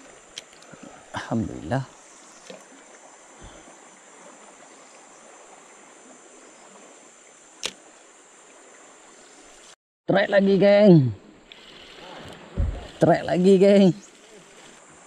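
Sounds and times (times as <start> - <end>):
sharp click: 7.6 - 7.8
soft hiss: 11.2 - 15.0.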